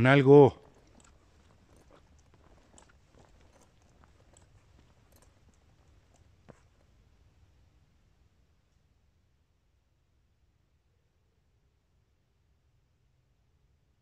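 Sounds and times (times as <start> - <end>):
faint clicks and crackles: 0.5 - 7.1.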